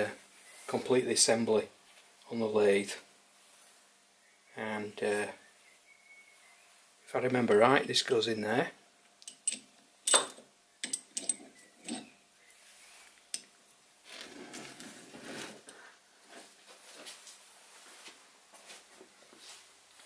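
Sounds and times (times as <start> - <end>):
metal parts scraping and handling: 9.3 - 12.2.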